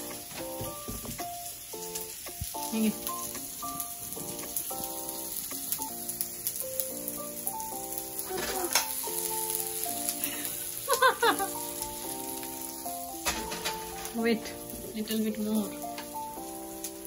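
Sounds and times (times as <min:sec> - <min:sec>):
background music: 0:00.0 - 0:17.0
vegetables sizzling in oil: 0:00.0 - 0:17.0
child's voice: 0:08.3 - 0:08.8.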